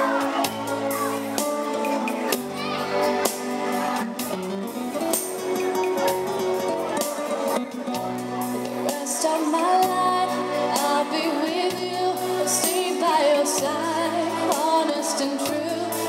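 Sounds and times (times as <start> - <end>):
keyboard accompaniment: 0.0 - 16.0
woman singing into microphone: 8.8 - 16.0.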